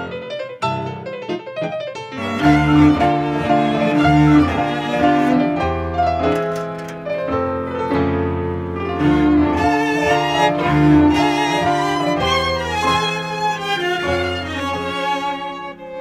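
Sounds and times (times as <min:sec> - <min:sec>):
piano chords: 0:00.0 - 0:16.0
bowed string instrument: 0:02.1 - 0:16.0.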